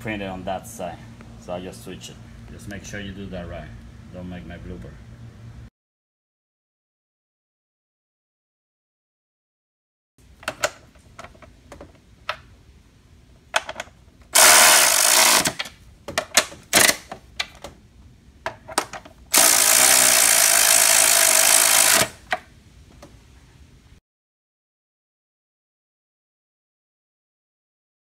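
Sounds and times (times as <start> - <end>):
electric ratchet running: 14.4 - 15.6, 16.8 - 17.0, 19.3 - 22.3.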